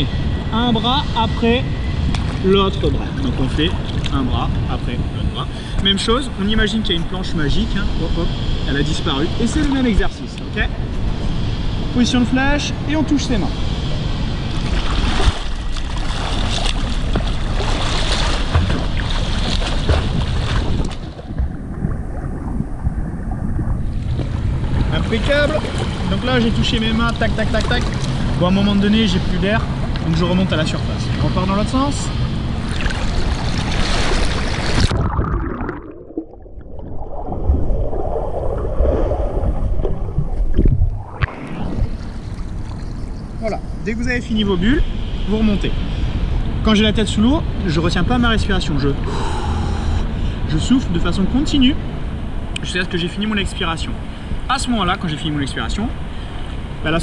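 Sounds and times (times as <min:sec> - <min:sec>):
low rumble of water and wind: 0:00.0 - 0:57.0
swimmer splashing: 0:14.5 - 0:28.7, 0:32.6 - 0:43.5
underwater exhaled bubbles: 0:18.5 - 0:24.9, 0:32.7 - 0:43.4.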